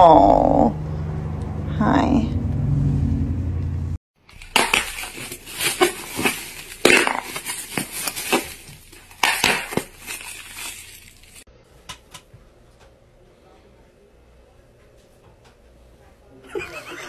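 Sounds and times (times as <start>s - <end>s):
plastic wrapping crinkling: 4.2s - 11.5s.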